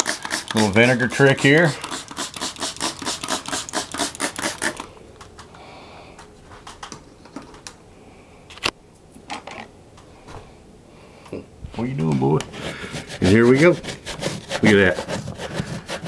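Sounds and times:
spray bottle squirting: 0.0 - 4.9
handling noises: 4.8 - 7.9.

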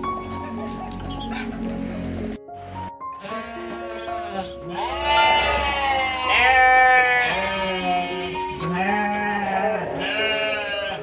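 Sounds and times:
background music: 0.0 - 11.0
wavering animal bleats: 3.1 - 11.0.

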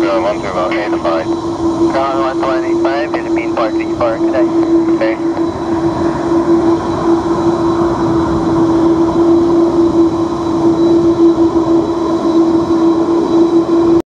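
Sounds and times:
high jet whine: 0.0 - 14.0
jet engines humming: 0.0 - 14.0
rushing noise: 0.0 - 14.0.

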